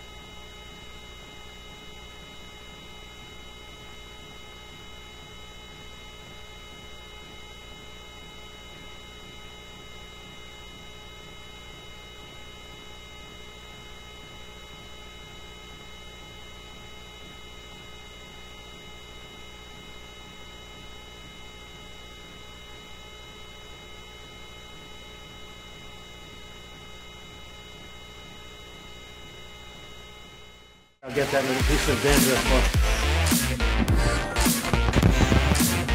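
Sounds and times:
helicopter hovering: 33.7 - 35.9.

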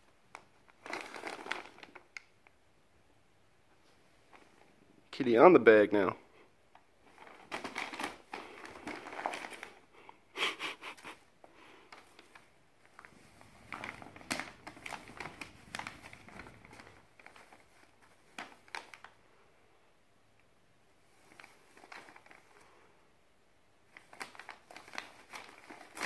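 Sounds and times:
paper bag crinkling: 0.7 - 2.2, 7.0 - 9.9, 11.8 - 19.2, 21.1 - 22.7, 23.9 - 26.0.

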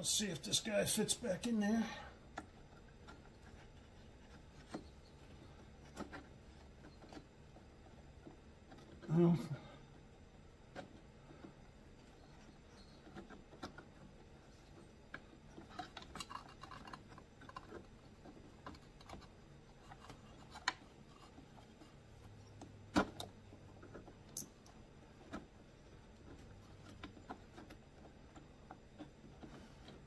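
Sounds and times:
small plastic parts clicking: 10.7 - 30.0.

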